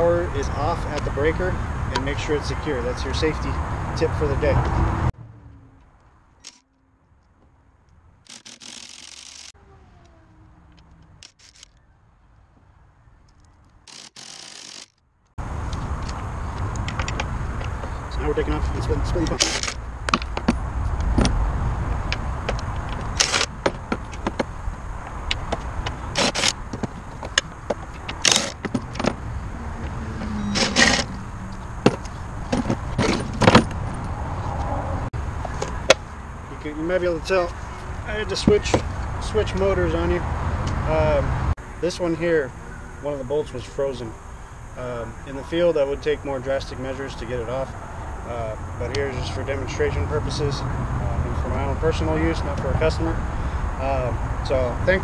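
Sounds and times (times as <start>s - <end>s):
cordless drill spinning: 8.3s - 9.5s, 13.9s - 14.9s.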